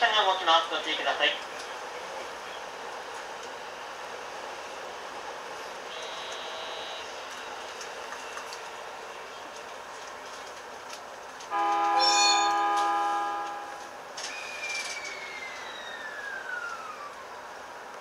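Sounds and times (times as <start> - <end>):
train running noise: 0.0 - 18.0
train horn chord: 5.9 - 7.2, 11.5 - 13.9.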